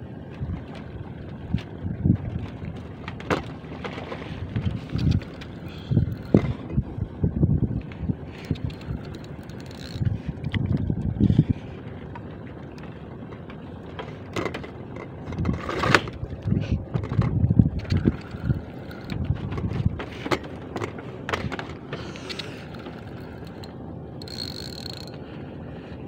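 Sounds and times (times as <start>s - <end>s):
wind buffeting microphone: 0.4s - 3.0s, 4.3s - 11.9s, 15.2s - 21.7s
spinning reel whirring: 4.6s - 6.8s, 7.7s - 11.4s, 17.0s - 25.4s.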